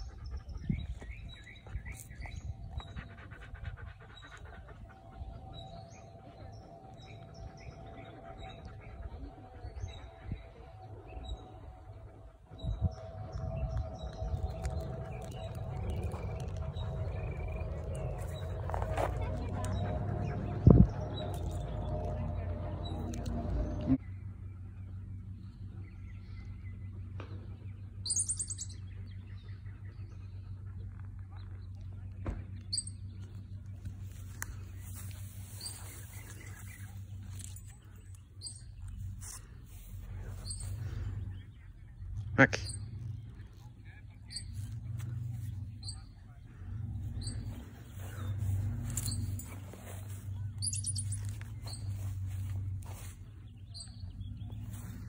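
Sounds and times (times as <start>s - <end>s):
dog panting: 0.0s - 23.6s
small birds chirping: 0.0s - 55.0s
steady low hum: 0.0s - 55.0s
bird trilling: 50.4s - 52.5s.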